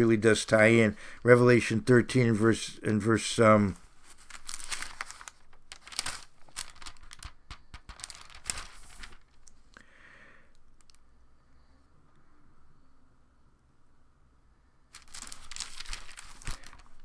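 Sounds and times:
thin pages flipping: 0:03.8 - 0:09.6, 0:14.9 - 0:17.0.

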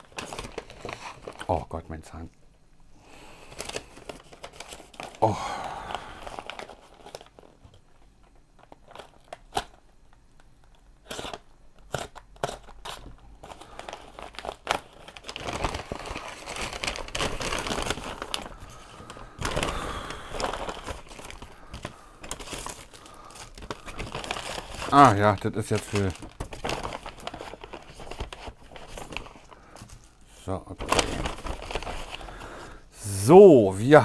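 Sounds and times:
paper bag rustling: 0:03.5 - 0:07.6, 0:12.5 - 0:33.6.

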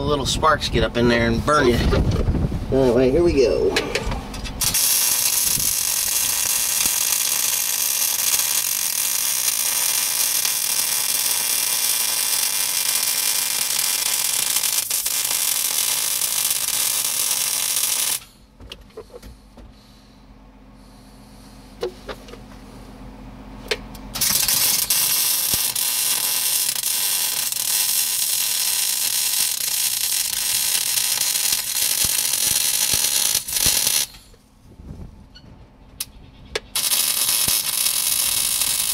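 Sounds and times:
welding arc hissing: 0:04.6 - 0:18.4, 0:24.2 - 0:34.3, 0:36.7 - 0:38.9.

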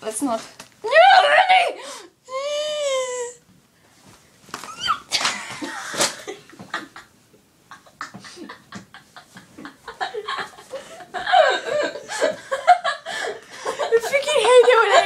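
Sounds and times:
girls laughing: 0:04.8 - 0:07.1, 0:07.7 - 0:15.0.

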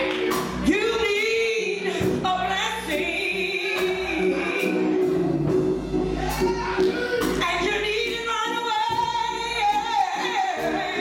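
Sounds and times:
live music with regular beat: 0:00.0 - 0:11.0
woman singing into a microphone: 0:00.6 - 0:04.9, 0:07.4 - 0:11.0
choir singing: 0:03.0 - 0:07.5, 0:09.6 - 0:11.0.

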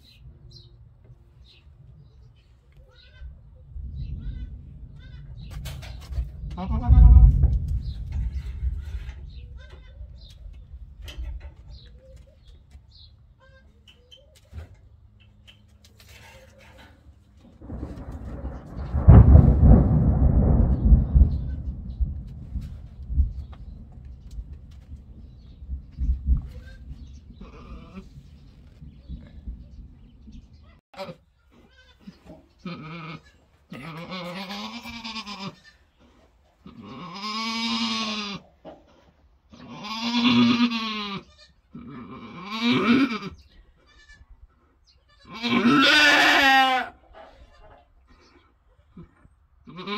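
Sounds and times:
goat bleating: 0:06.5 - 0:07.4, 0:13.4 - 0:13.9, 0:31.0 - 0:35.9, 0:36.6 - 0:38.5, 0:39.5 - 0:44.3, 0:45.0 - 0:47.9, 0:48.9 - 0:49.9.

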